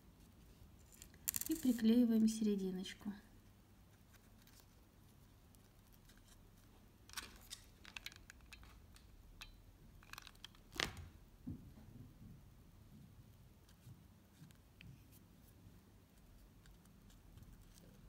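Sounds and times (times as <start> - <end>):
small handling clicks: 7.1 - 11.0.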